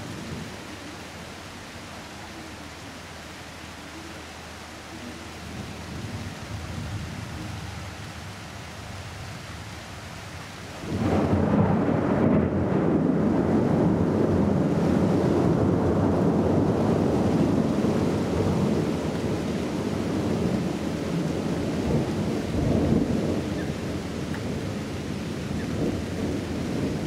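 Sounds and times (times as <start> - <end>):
thunder rumbling: 10.8 - 27.0.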